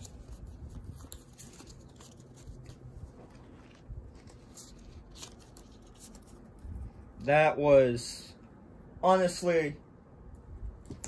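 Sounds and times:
trading cards rustling: 0:00.0 - 0:06.9.

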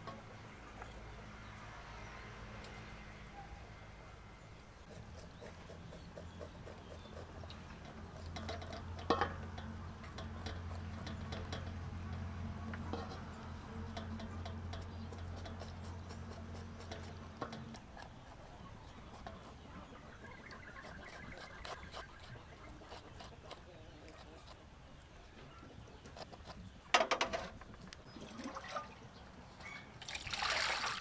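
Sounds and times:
knife scraping wet clicks: 0:04.9 - 0:19.6, 0:20.4 - 0:24.6.

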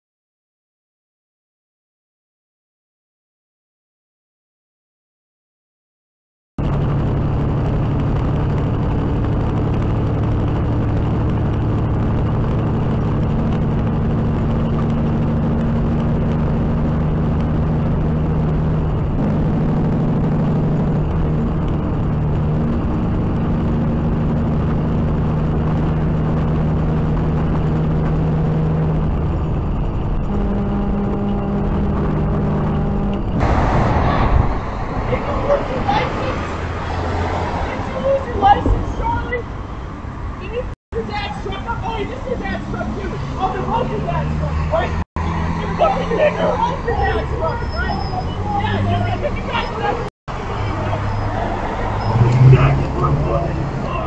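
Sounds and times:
loud rushing noise: 0:06.6 - 0:40.2, 0:48.2 - 0:54.0
road noise: 0:06.6 - 0:54.0
truck engine droning: 0:06.6 - 0:54.0.

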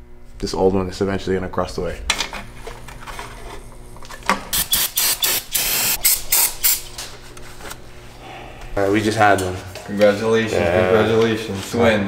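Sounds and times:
aerosol spray can hissing: 0:04.5 - 0:06.8.

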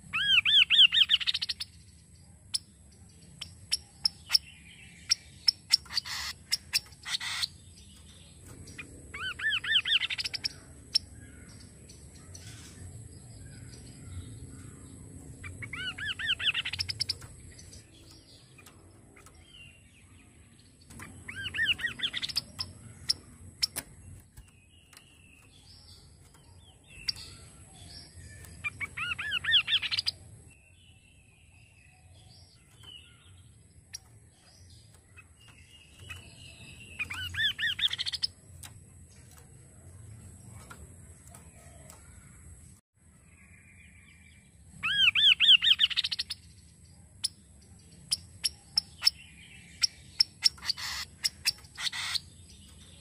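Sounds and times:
soft bird chirps: 0:00.0 - 0:53.0
bird singing sweeping notes: 0:03.4 - 0:42.8.

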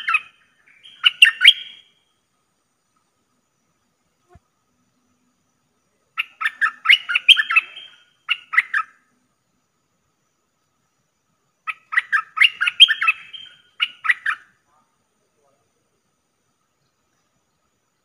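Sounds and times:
bulbul chattering calls: 0:00.0 - 0:01.9, 0:06.1 - 0:09.0, 0:11.6 - 0:14.6.

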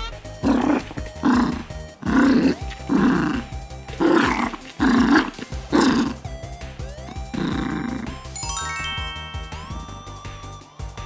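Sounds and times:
background music: 0:00.0 - 0:11.0
small dog growling: 0:00.4 - 0:08.4.

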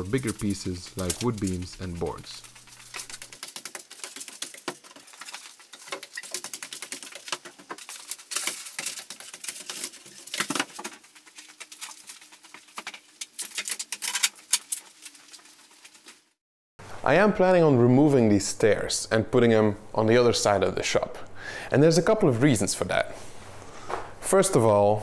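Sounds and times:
clatter of objects being handled: 0:00.0 - 0:16.2.

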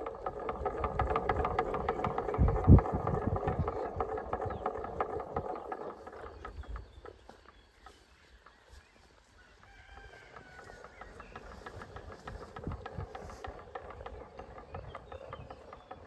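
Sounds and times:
windmill rattling clicks: 0:00.0 - 0:09.0, 0:09.6 - 0:16.0.

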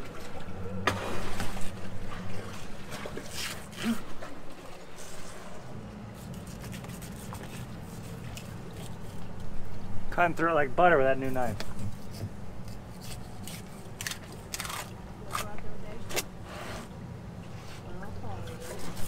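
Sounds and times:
steady low hum: 0:00.0 - 0:19.0
knife cutting and scraping fish: 0:03.1 - 0:04.3, 0:05.0 - 0:09.7, 0:11.2 - 0:16.9, 0:17.5 - 0:19.0.

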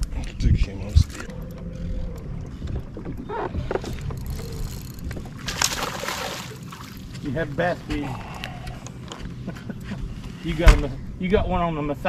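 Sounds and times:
boat motor humming: 0:01.1 - 0:10.4.

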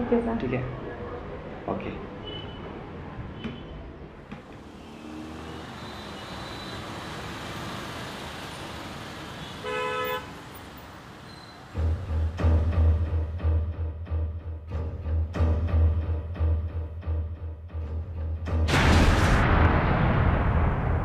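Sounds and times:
road traffic: 0:00.0 - 0:13.6
car horn: 0:02.2 - 0:02.8, 0:04.7 - 0:07.1, 0:09.4 - 0:10.4
dramatic music with deep drum: 0:11.8 - 0:20.7.

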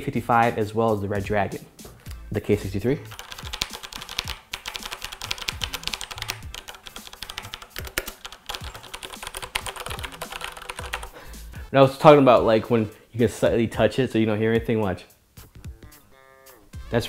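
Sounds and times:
mechanical keyboard typing: 0:03.1 - 0:11.2.

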